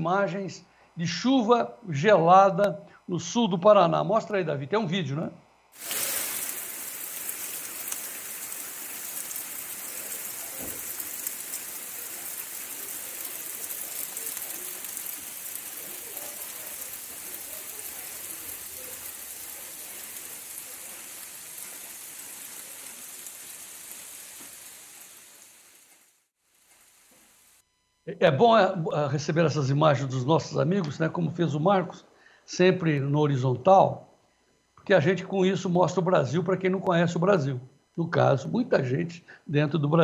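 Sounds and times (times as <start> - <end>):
steady rain pouring: 5.8 - 27.6.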